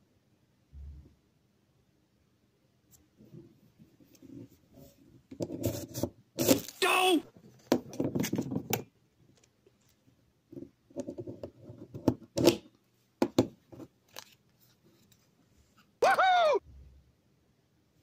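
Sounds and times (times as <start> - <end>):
card clicks and rustles: 14.1 - 15.2
voice-like call: 16.0 - 16.7.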